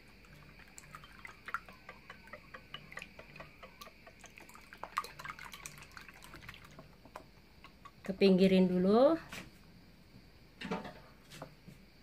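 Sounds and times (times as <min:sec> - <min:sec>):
liquid sloshing: 0:00.0 - 0:07.3.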